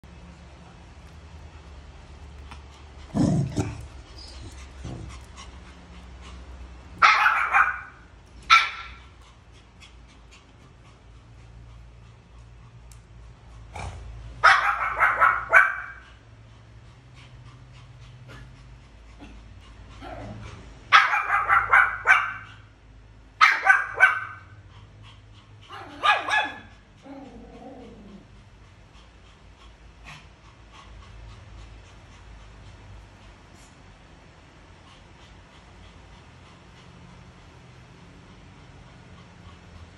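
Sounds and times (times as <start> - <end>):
small dogs barking: 6.9 - 9.2, 14.4 - 16.2, 20.9 - 22.7, 23.4 - 24.6, 25.7 - 28.0.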